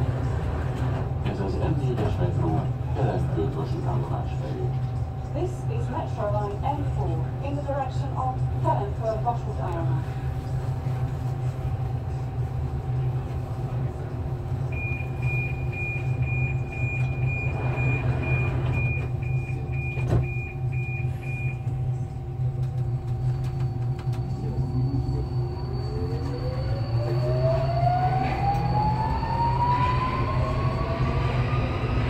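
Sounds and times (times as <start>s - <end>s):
train humming: 0.0s - 32.0s
traction motor whine: 23.0s - 32.0s.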